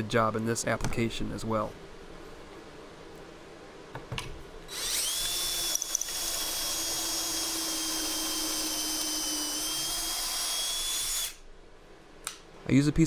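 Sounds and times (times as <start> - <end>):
cordless drill whining: 4.7 - 11.4.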